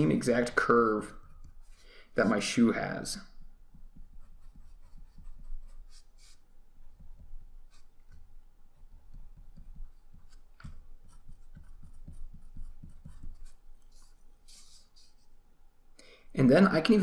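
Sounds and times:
pencil scratching on paper: 0.7 - 2.4, 3.7 - 15.3.

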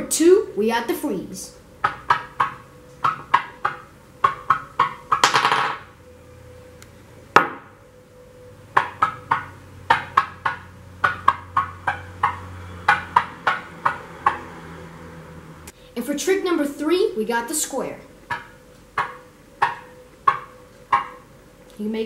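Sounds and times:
wooden stick clacking on table: 1.8 - 5.8, 8.8 - 14.4, 18.3 - 21.2
loud knock: 7.4 - 7.7.

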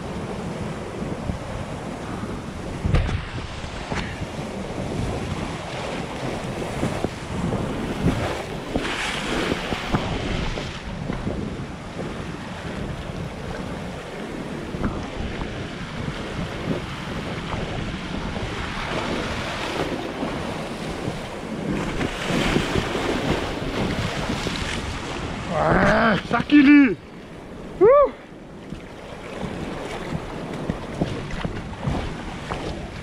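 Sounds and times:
wind buffeting microphone: 0.0 - 33.0
surf breaking on rocks: 2.7 - 11.3, 14.0 - 27.0.

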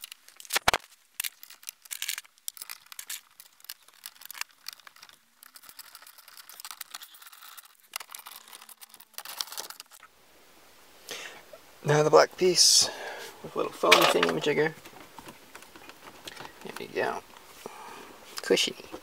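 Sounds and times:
small plastic clicks: 0.0 - 10.0
rubber crinkling and rustling: 0.0 - 10.1, 13.8 - 17.6.

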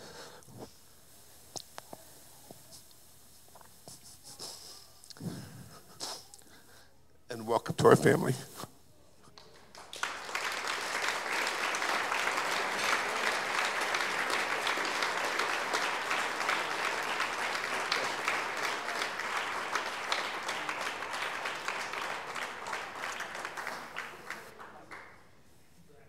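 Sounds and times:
crowd applauding: 9.4 - 25.3.

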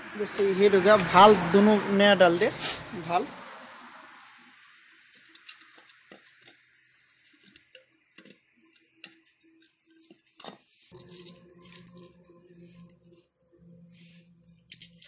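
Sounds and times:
metallic clicks of engine parts: 5.0 - 12.1, 14.6 - 15.0.

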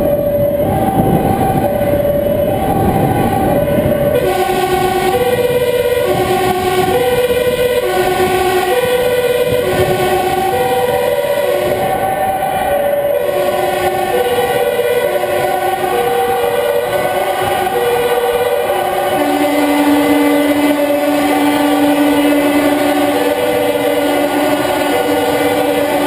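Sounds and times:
engine and road noise: 0.0 - 26.0
two-tone emergency sirens: 0.0 - 26.0.

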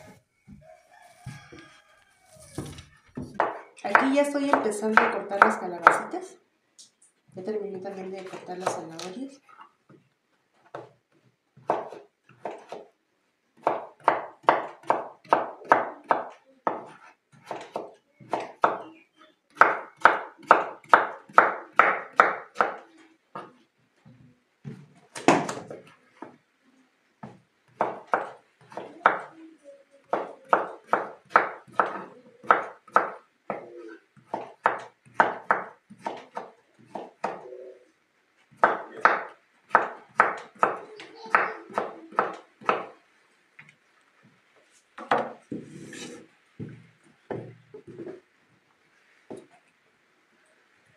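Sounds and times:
knife chopping on wooden board: 34.3 - 37.4.

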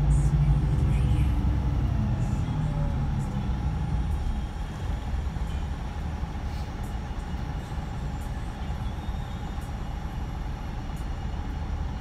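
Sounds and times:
diesel bus engine drone: 0.0 - 12.0
road rumble: 0.0 - 12.0.

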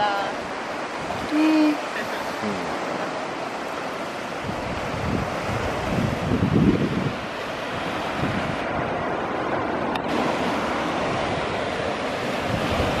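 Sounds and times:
surf breaking on rocky shore: 0.0 - 13.0
wind buffeting microphone: 2.7 - 13.0.

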